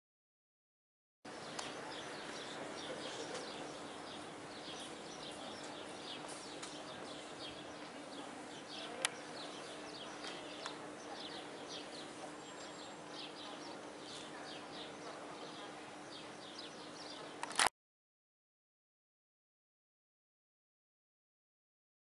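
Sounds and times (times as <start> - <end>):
small birds chirping: 1.3 - 17.6
sharp click: 17.4 - 17.7.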